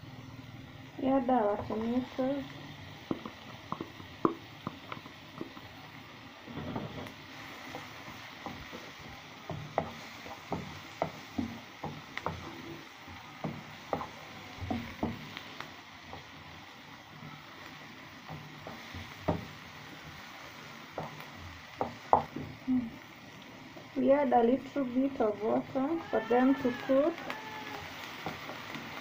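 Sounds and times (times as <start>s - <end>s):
frying sizzle: 0.0s - 29.0s
spoon knocking against pan: 3.1s - 5.6s, 7.7s - 12.7s, 18.2s - 19.6s, 20.9s - 22.6s.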